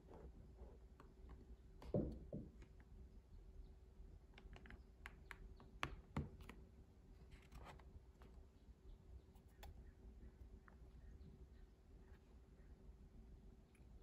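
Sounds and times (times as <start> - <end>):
faint steady hum: 0.0 - 14.0
knocks: 1.9 - 2.6.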